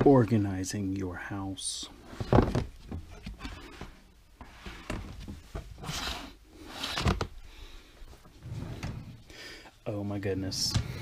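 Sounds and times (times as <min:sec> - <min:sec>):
plastic drawers sliding: 0:08.4 - 0:09.3.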